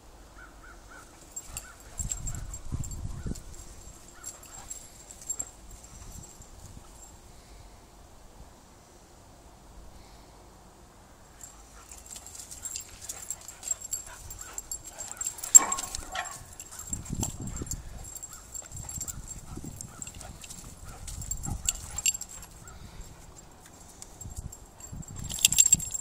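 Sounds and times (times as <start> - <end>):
dogs scuffling and rustling: 1.0 - 7.1, 11.4 - 26.0.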